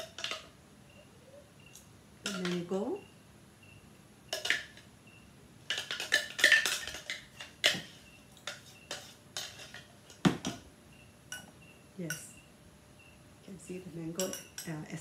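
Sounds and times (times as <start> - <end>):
spoon scraping and tapping cup: 2.3 - 2.7, 4.3 - 4.9, 5.7 - 10.6, 14.2 - 14.8.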